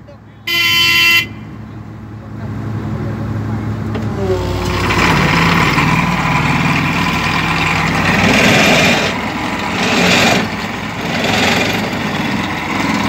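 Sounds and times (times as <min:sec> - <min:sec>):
excavator engine: 0:00.0 - 0:13.0
vibratory pile driver buzzing: 0:04.2 - 0:13.0.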